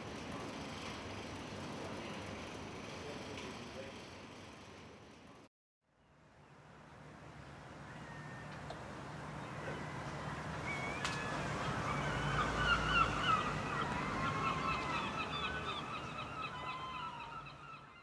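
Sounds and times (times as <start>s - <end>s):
flock of birds honking: 9.6s - 18.0s.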